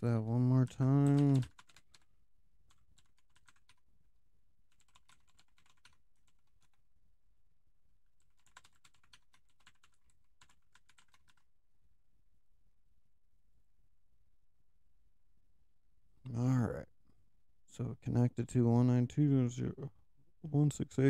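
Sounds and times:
typing on computer keyboard: 0.8 - 2.1, 2.7 - 3.8, 4.7 - 6.8, 8.2 - 11.4.

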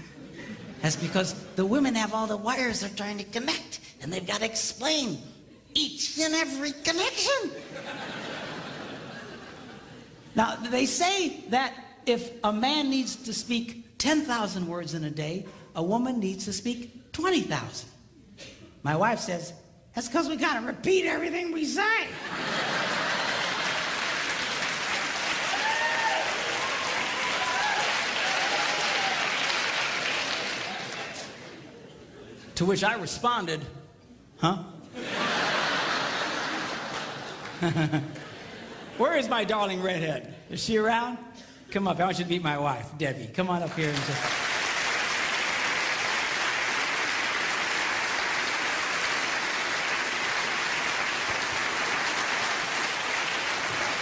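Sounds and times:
audience applauding: 22.4 - 31.7, 35.5 - 38.3, 43.7 - 54.0.

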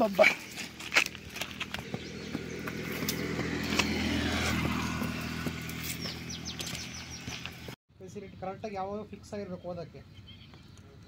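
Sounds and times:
footsteps on dirt path: 0.0 - 7.8
motor vehicle engine running: 0.7 - 7.8
high bird chirps: 1.8 - 3.4, 5.8 - 8.5, 9.6 - 10.9.

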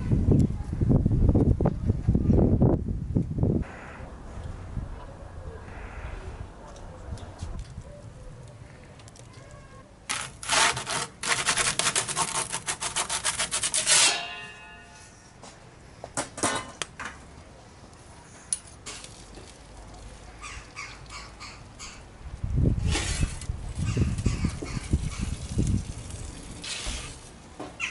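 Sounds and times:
metal peel scraping on stone: 10.1 - 15.2, 22.8 - 24.0, 26.6 - 27.2.

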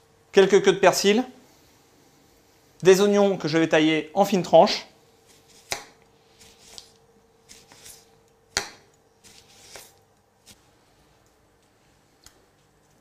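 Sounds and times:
knife slicing onion on plastic board: 5.2 - 10.6.

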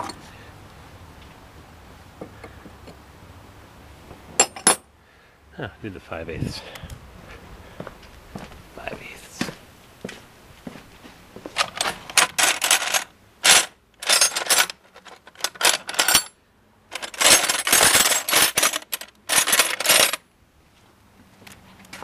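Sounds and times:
wrenches clinking in a drawer: 11.6 - 20.2.

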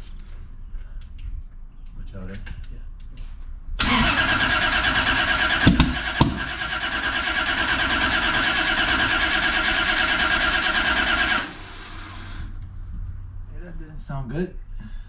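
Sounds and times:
sharp engine bangs: 3.8 - 12.5
engine cranking by starter: 3.8 - 12.6.

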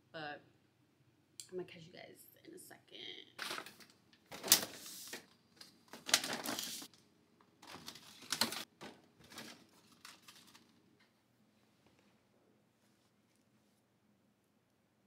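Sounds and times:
plastic packaging clattering and rustling: 3.4 - 7.0, 7.6 - 10.8.

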